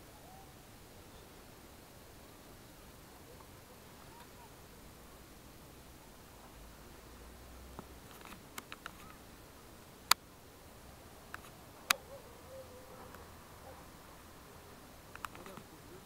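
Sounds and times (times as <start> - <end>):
faint outdoor hiss: 0.0 - 16.0.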